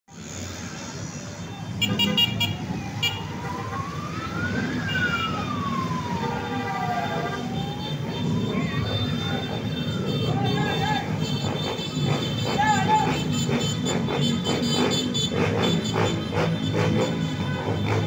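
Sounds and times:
motorcycle engines rumbling: 0.1 - 18.0
horn beeps: 1.2 - 3.3
siren wailing: 2.4 - 11.2.

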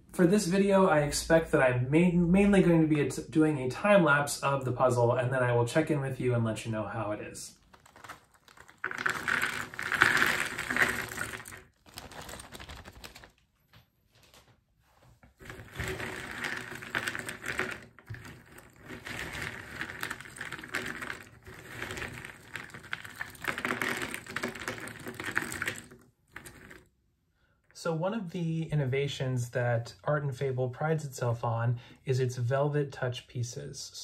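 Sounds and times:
hands stirring puzzle pieces: 7.5 - 13.4, 15.2 - 26.9
puzzle pieces pouring from plastic bag: 7.6 - 13.4, 15.4 - 26.9.

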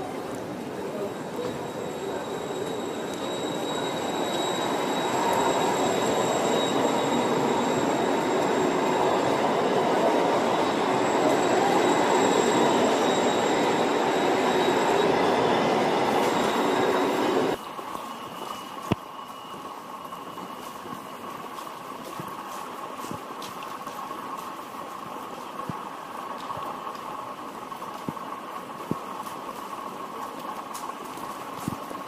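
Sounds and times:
tram rolling on rails: 0.0 - 32.0
thin high-pitched tone: 0.9 - 19.5.

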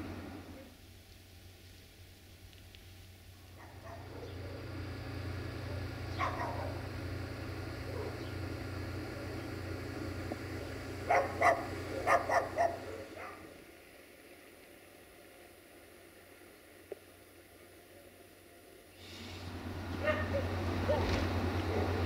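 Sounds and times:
diesel engine droning: 0.0 - 22.0
dog barking: 3.6 - 4.6, 5.6 - 6.9, 7.8 - 8.3, 11.0 - 13.5, 20.0 - 22.0.

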